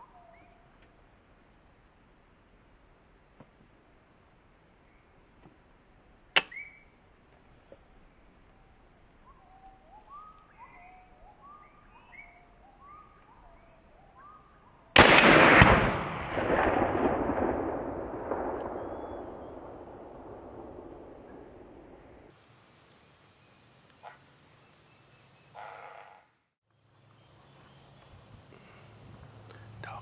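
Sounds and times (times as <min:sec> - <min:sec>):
gunshot echo: 0:15.0 - 0:22.3
rifle shot: 0:15.0 - 0:22.3.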